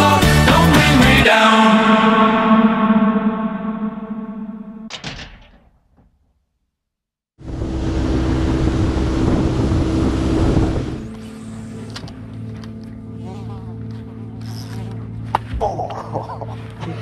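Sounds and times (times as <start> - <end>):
music: 0.0 - 4.9, 11.1 - 17.0
wind noise: 7.4 - 11.1
outboard motor humming: 7.4 - 16.0.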